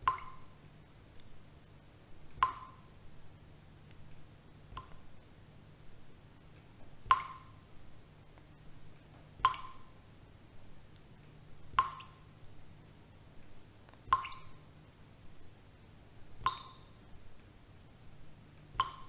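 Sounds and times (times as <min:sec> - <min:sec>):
water drips plinking: 0:00.0 - 0:00.6, 0:02.3 - 0:02.9, 0:04.7 - 0:05.3, 0:06.8 - 0:07.7, 0:08.4 - 0:10.0, 0:11.7 - 0:12.6, 0:13.9 - 0:14.9, 0:16.4 - 0:17.0, 0:18.6 - 0:19.0.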